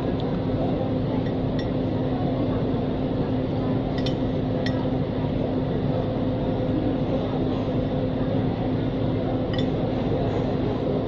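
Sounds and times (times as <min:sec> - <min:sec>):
mechanical hum and rumble: 0:00.0 - 0:11.0
spoon clinking against glass bowl: 0:09.5 - 0:09.8.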